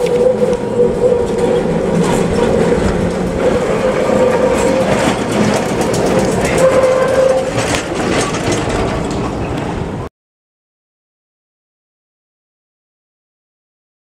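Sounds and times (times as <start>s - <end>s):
tram wheels clicking over rails: 0.0s - 10.1s
tram whine: 0.0s - 10.1s.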